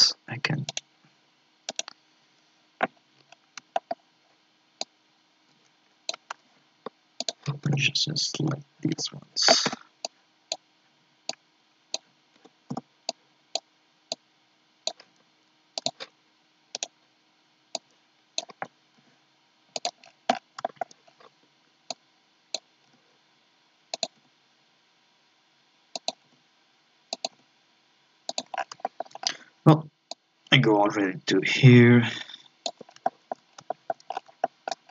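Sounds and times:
mouse and keyboard clicks: 0:01.7 - 0:02.0, 0:15.8 - 0:16.0, 0:19.8 - 0:20.9, 0:26.0 - 0:26.2, 0:27.2 - 0:27.4, 0:28.3 - 0:29.3.

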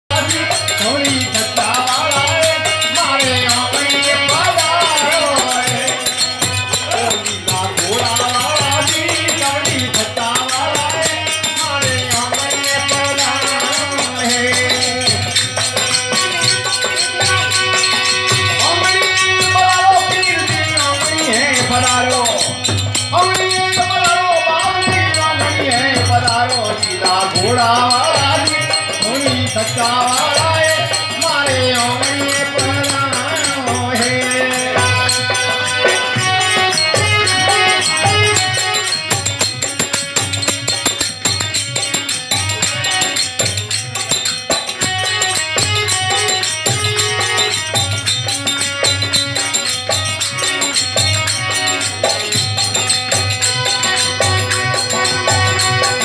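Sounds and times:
person singing: 0:00.1 - 0:43.7
dholak drum: 0:00.1 - 0:56.0
jingling hand percussion: 0:00.1 - 0:56.0.

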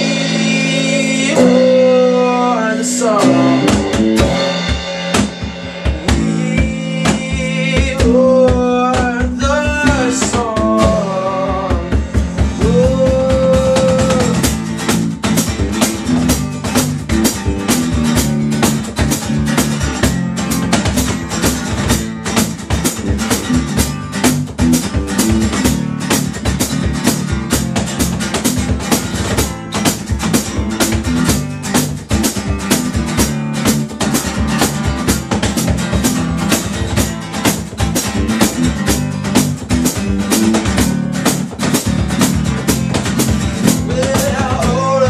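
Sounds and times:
bass guitar: 0:00.0 - 0:45.0
box drum beat: 0:00.0 - 0:45.0
guitar: 0:00.0 - 0:45.0.

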